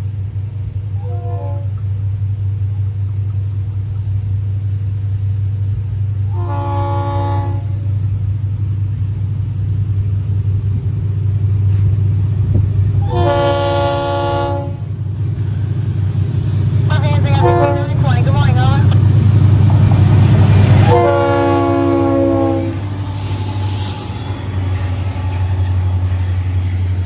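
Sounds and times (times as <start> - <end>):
steady low rumble: 0.0 - 27.0
locomotive air horn blasts: 1.0 - 1.8, 6.3 - 7.9, 13.0 - 14.9, 16.9 - 18.1, 20.8 - 23.5.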